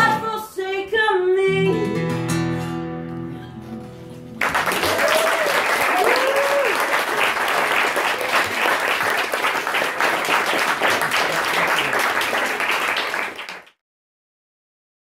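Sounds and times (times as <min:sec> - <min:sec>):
audience applauding: 0:04.4 - 0:13.8.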